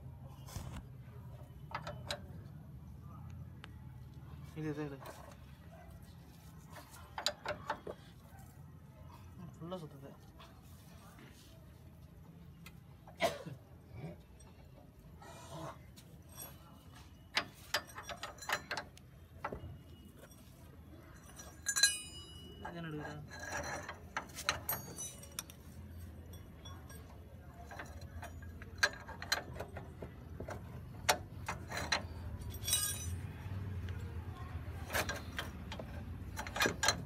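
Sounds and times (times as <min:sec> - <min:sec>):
metal tools clicking on bolts: 0:01.4 - 0:02.6, 0:06.7 - 0:08.2, 0:16.2 - 0:37.0
ringing metal clink: 0:16.2 - 0:33.6.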